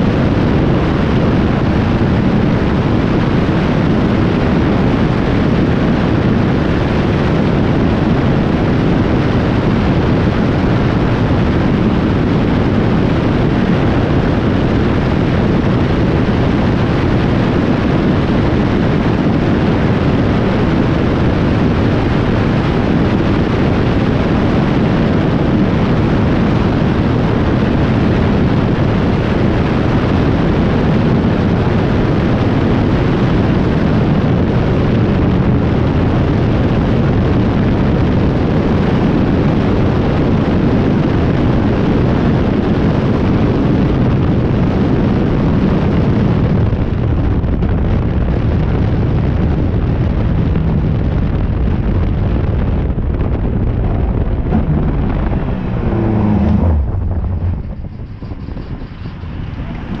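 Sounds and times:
wind buffeting microphone: 0:00.0 - 1:00.0
racing car engine and tyres: 0:52.0 - 1:00.0.

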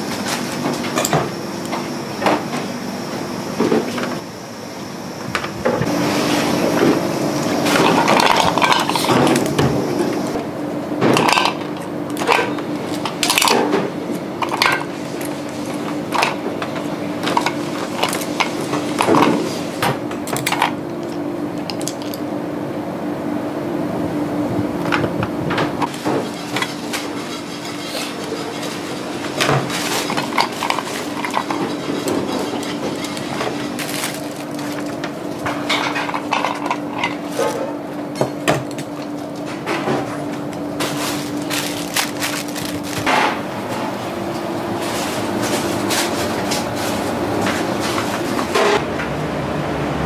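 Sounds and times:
steady hum: 0:00.0 - 0:50.0
dishes and utensils clinking: 0:25.8 - 0:40.2.

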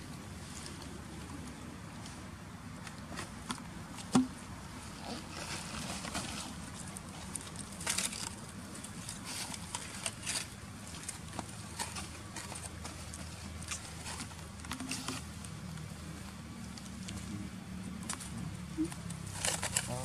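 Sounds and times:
dry leaves rustling and crackling: 0:04.8 - 0:20.0.

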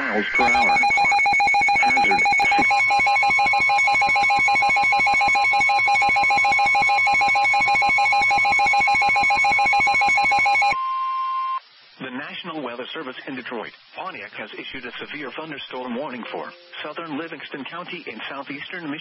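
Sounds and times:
electronic alert tone: 0:00.0 - 0:05.4, 0:16.1 - 0:16.9.

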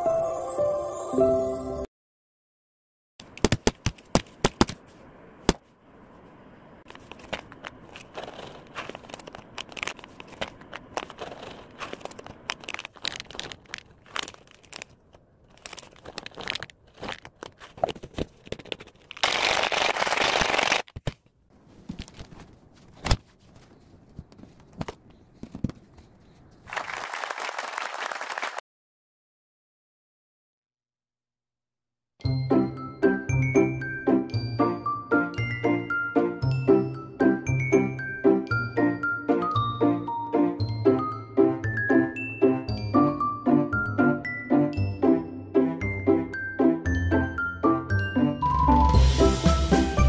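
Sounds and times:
sharp crack: 0:03.2 - 0:04.8
plastic pouch crinkling: 0:06.9 - 0:21.3.

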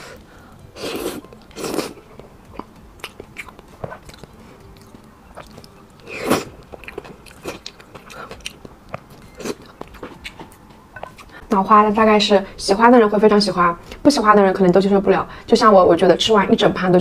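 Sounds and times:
wet chewing with clicks: 0:01.2 - 0:11.4.

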